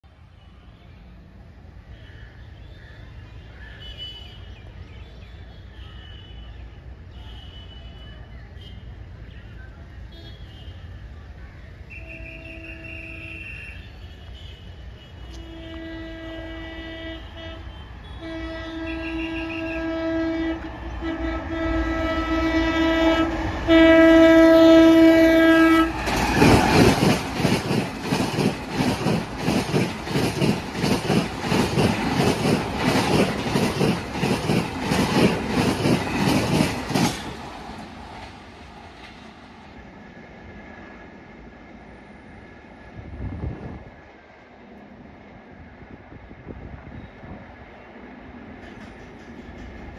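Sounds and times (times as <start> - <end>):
locomotive horn blasts: 11.9 - 26.0
train rushing past: 15.4 - 49.9
wheels clattering over rail joints: 25.9 - 39.4, 48.5 - 49.9.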